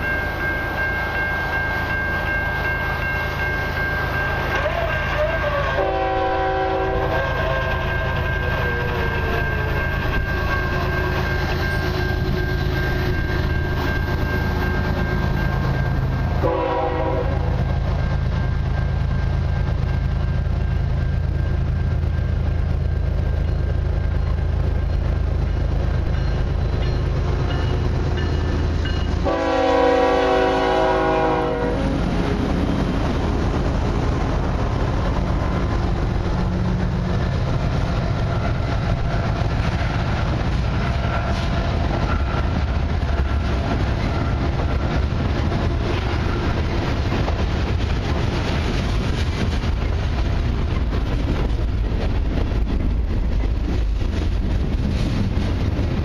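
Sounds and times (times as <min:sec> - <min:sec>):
locomotive horn blasts: 0:04.5 - 0:08.1, 0:16.4 - 0:17.6, 0:29.2 - 0:32.0.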